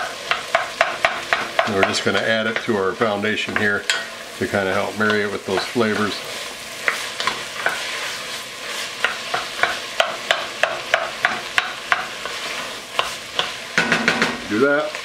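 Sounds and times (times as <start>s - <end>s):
vegetables sizzling in butter: 0.0s - 15.0s
wooden spoon scraping a pot: 3.4s - 13.8s.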